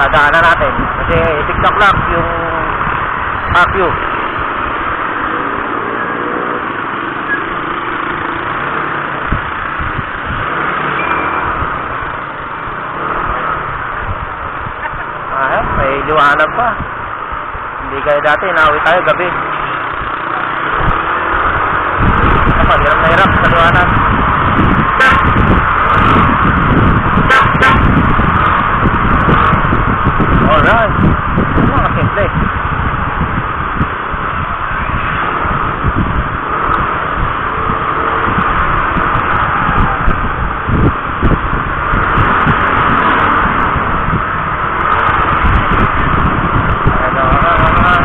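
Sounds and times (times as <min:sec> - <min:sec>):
wind and road noise: 0:00.0 - 0:48.0
vehicle horn toots: 0:25.0 - 0:25.3, 0:27.3 - 0:27.9.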